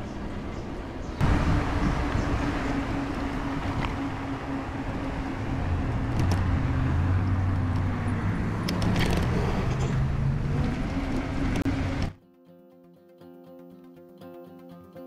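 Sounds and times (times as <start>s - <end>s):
wind rushing over microphone: 0.0s - 12.1s
tyre and road hum: 0.0s - 12.2s.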